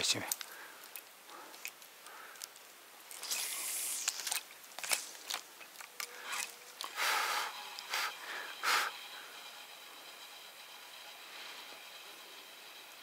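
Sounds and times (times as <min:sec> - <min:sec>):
reeds and grass rustling: 0:00.0 - 0:08.8.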